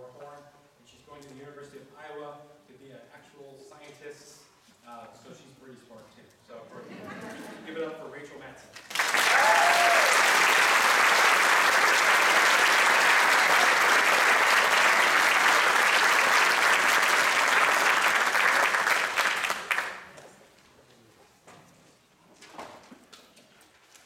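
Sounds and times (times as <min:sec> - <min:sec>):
audience applauding: 0:08.8 - 0:20.2.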